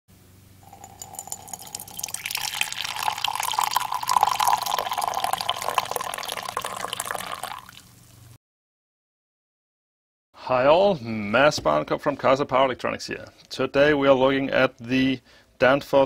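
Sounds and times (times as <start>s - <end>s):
coffee pouring into a mug: 0.6s - 8.0s.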